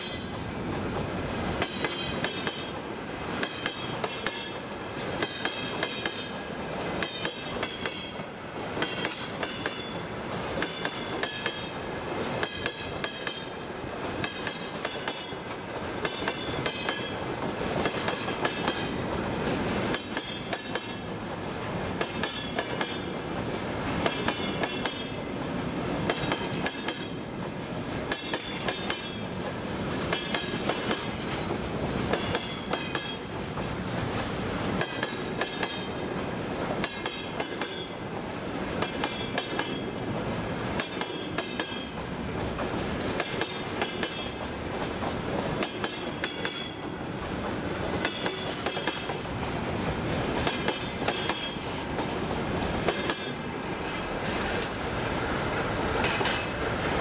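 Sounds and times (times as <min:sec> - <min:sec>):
freight train rumbling past: 0:00.0 - 0:57.0
wheels clattering over rail joints: 0:55.4 - 0:57.0.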